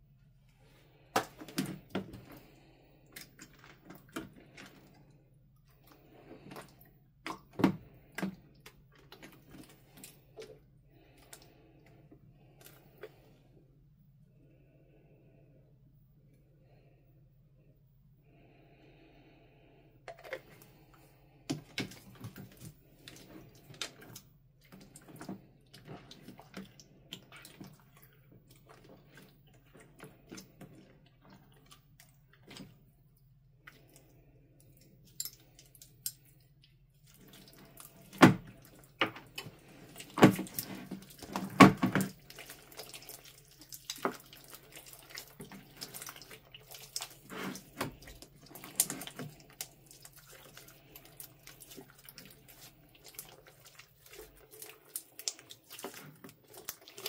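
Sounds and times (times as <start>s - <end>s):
slime squelching and popping: 37.0s - 57.0s.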